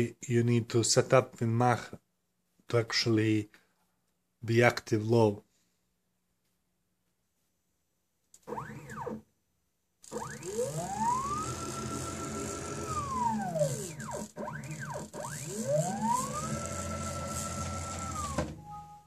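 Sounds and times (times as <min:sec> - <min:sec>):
stepper motor whine: 0:10.1 - 0:18.6.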